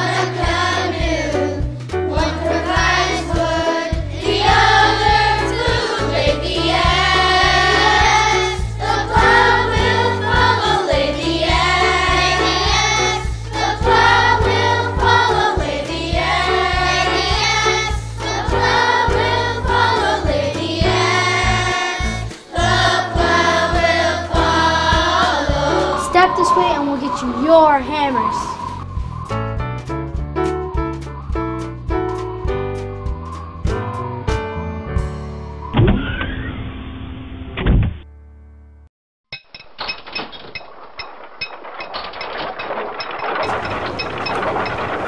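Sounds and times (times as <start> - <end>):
children singing: 0.0 - 28.7
instrumental backing with bass: 0.0 - 36.6.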